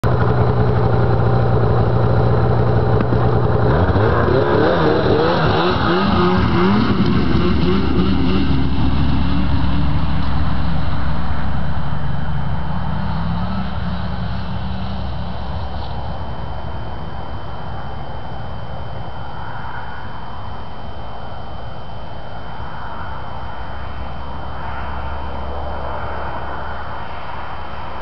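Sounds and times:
snowmobile engine accelerating: 0:00.0 - 0:19.3.

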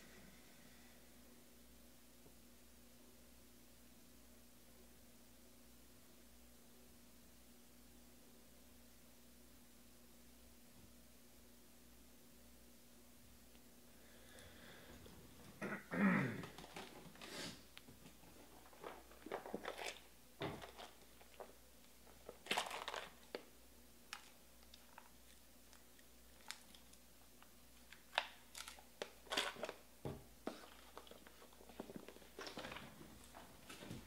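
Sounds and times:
rustling of handling: 0:16.4 - 0:23.5, 0:27.8 - 0:34.0.

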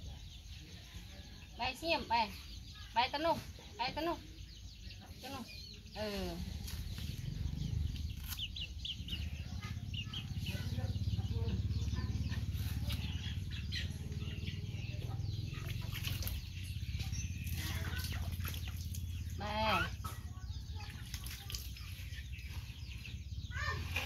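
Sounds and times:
chickens clucking: 0:06.6 - 0:24.0.

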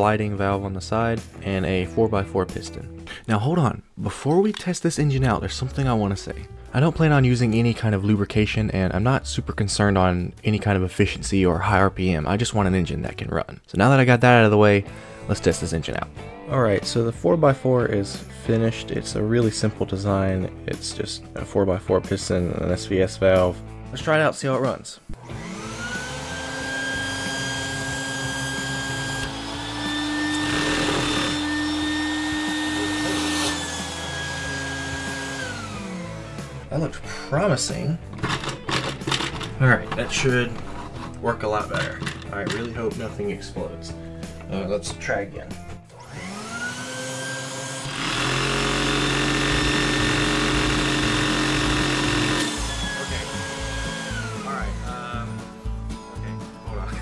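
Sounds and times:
vacuum cleaner motor whine: 0:25.2 - 0:36.6, 0:46.0 - 0:55.1
small piston engine running: 0:46.2 - 0:55.0.

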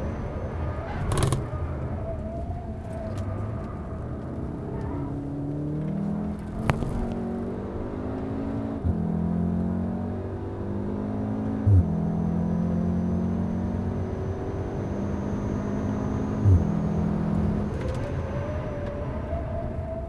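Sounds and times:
car engine revving: 0:00.0 - 0:20.0
gearbox upshifts: 0:00.9 - 0:09.1.

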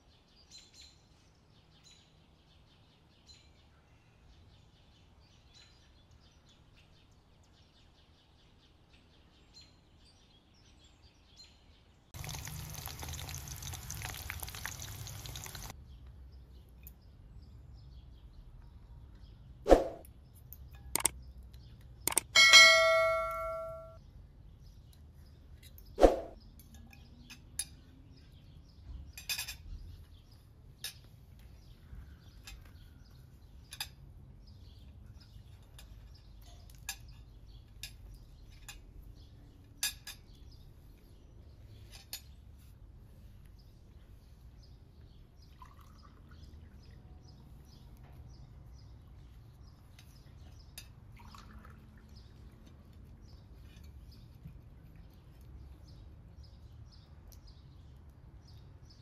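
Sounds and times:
water poured into a glass: 0:12.2 - 0:15.7, 0:45.5 - 0:46.4, 0:51.1 - 0:52.1
cutlery clinking on plates: 0:22.1 - 0:24.0, 0:39.7 - 0:40.4.

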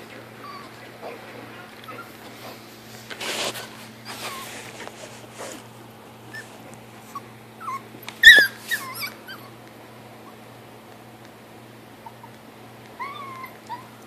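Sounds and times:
puppy yipping and whimpering: 0:00.4 - 0:00.8, 0:01.8 - 0:02.2, 0:06.3 - 0:09.6, 0:12.0 - 0:12.4, 0:13.0 - 0:14.0.

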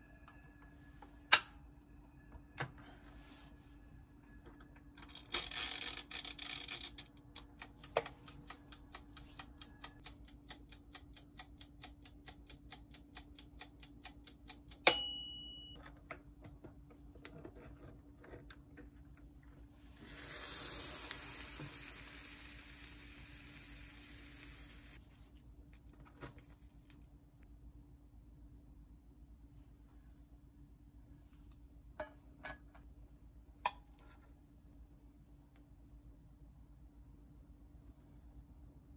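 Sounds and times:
timer bell ringing: 0:14.9 - 0:15.8
steady hiss: 0:20.0 - 0:25.0.

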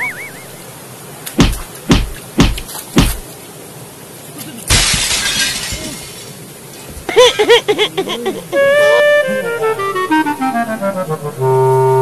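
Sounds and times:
sharp thuds: 0:01.3 - 0:03.3
loud crash: 0:04.7 - 0:06.3.

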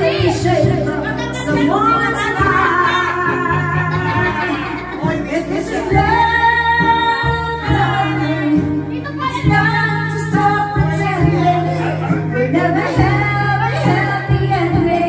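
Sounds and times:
backing track with bass line: 0:00.0 - 0:15.0
woman singing into microphone: 0:00.0 - 0:15.0.

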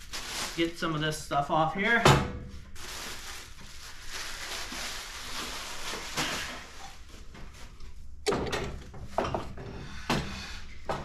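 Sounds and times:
packing material rustling and scraping: 0:00.0 - 0:01.0, 0:02.6 - 0:07.8.

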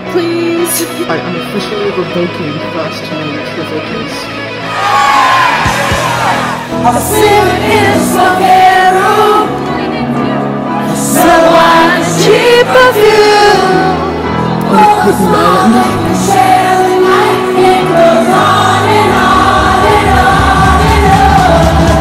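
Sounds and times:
bass line: 0:01.9 - 0:08.3, 0:13.2 - 0:22.0
person singing: 0:10.7 - 0:22.0.

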